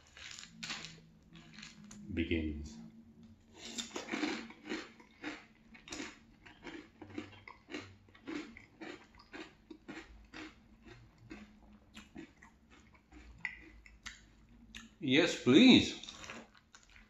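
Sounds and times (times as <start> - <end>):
person chewing crunchy cereal: 0.0 - 2.0, 3.6 - 15.0, 16.0 - 17.0.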